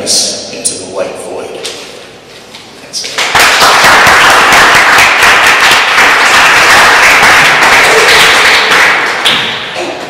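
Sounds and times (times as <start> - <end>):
audience clapping: 3.1 - 9.8.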